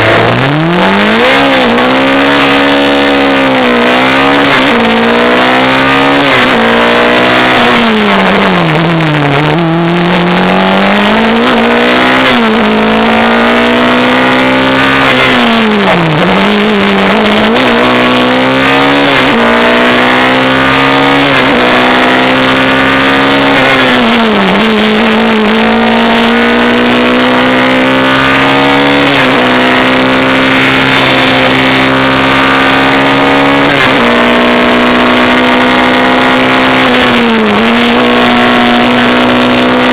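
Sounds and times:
racing engine running hard: 0:00.0 - 0:39.9.

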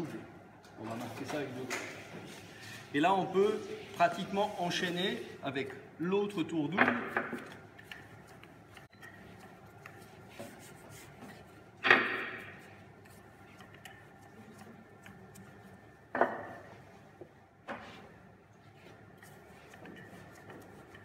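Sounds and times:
rolling pin rubbing over dough: 0:07.4 - 0:17.2, 0:17.8 - 0:21.0.

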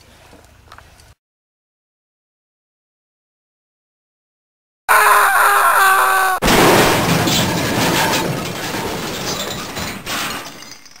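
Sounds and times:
loud crash: 0:06.4 - 0:10.6.

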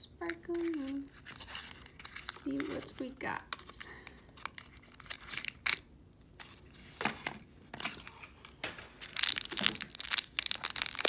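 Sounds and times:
plastic wrapper crinkling and tearing: 0:00.3 - 0:06.7, 0:09.0 - 0:11.0.

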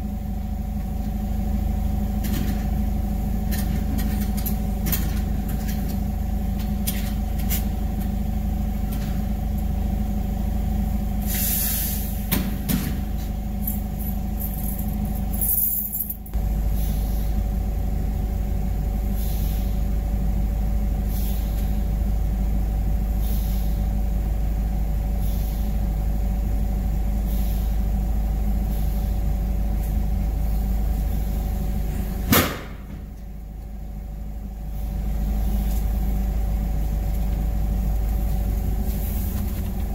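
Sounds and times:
forklift engine hum: 0:00.0 - 0:39.9.

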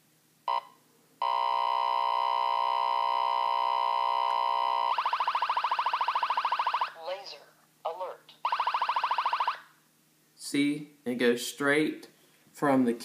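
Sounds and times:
steady alert tone: 0:01.2 - 0:07.0, 0:08.4 - 0:09.6
rapid pulsing alert: 0:02.9 - 0:07.0, 0:08.4 - 0:09.6.

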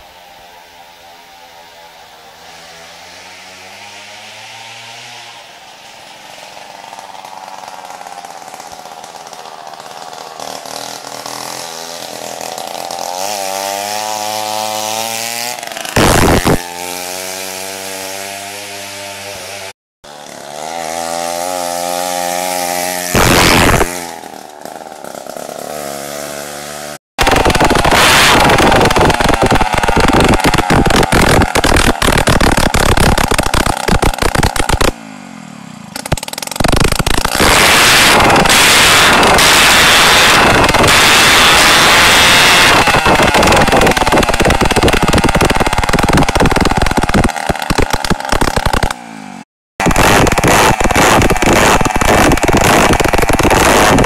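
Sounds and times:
moped engine buzzing: 0:00.0 - 0:54.0
loud rushes of noise: 0:15.6 - 0:17.0, 0:20.2 - 0:26.4, 0:27.2 - 0:54.0.

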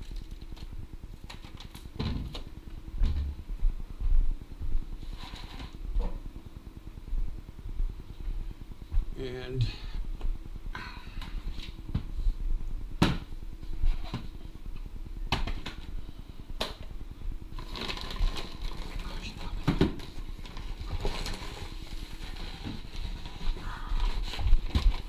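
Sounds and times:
rustling clatter: 0:17.6 - 0:25.0.

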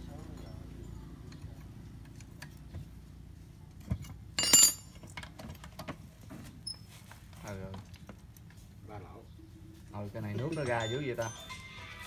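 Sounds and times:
metal tools clinking: 0:00.0 - 0:02.5, 0:04.0 - 0:05.2, 0:10.3 - 0:12.0.

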